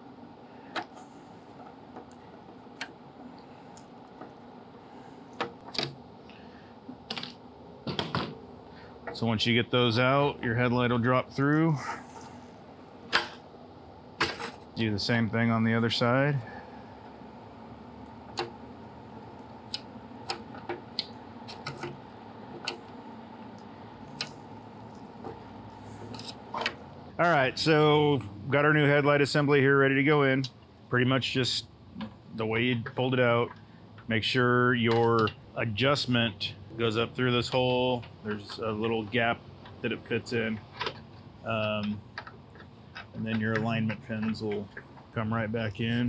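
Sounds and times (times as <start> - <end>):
faint steady hum: 0.0 - 46.0.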